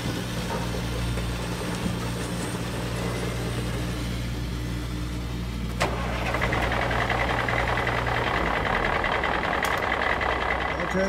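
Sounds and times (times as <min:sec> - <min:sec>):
engine idling low hum: 0:00.0 - 0:11.0
hissy engine with high note: 0:02.7 - 0:11.0.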